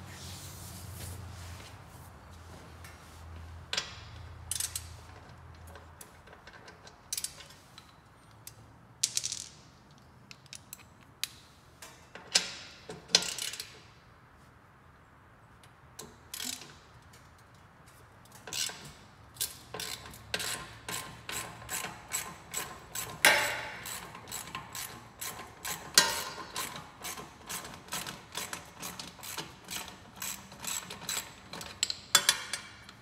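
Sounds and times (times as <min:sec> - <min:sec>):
ratchet wrench clicking: 0:19.4 - 0:33.0.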